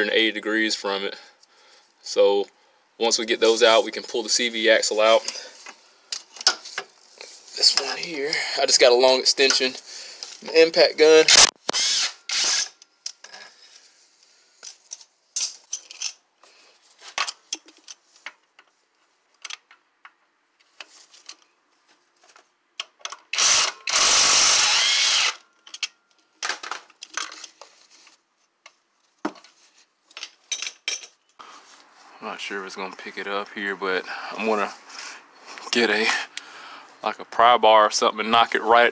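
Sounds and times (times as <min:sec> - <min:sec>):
metal tools clicking and clinking: 0:14.6 - 0:16.2, 0:25.5 - 0:26.2, 0:30.1 - 0:31.2.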